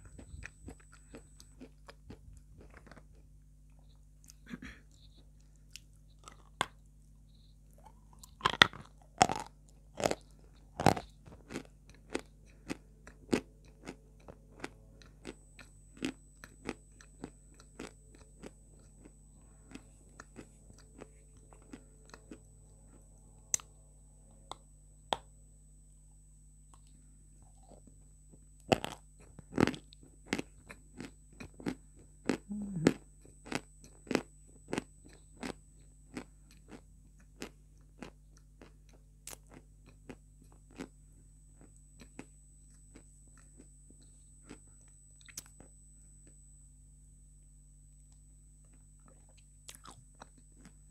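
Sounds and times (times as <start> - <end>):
crunchy chewing of chalk: 0.0 - 23.7, 28.6 - 40.9, 41.5 - 45.7, 48.7 - 50.8.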